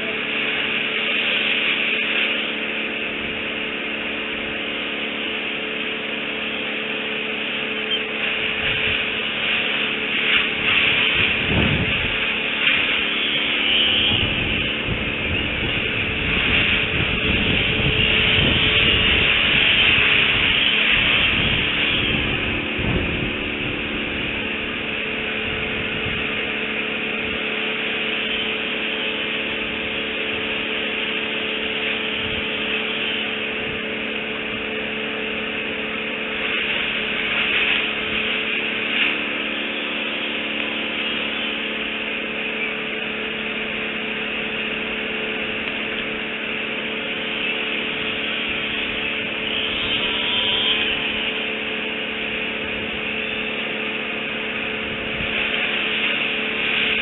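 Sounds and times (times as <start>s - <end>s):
faint steady hum: 0.0s - 31.0s
even outdoor hiss: 0.0s - 57.0s.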